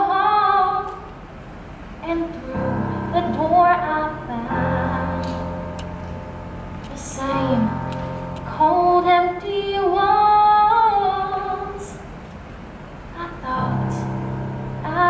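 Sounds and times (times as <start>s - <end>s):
woman singing: 0.0s - 1.1s, 2.0s - 5.4s, 6.9s - 7.8s, 8.5s - 12.0s, 13.2s - 14.2s, 14.8s - 15.0s.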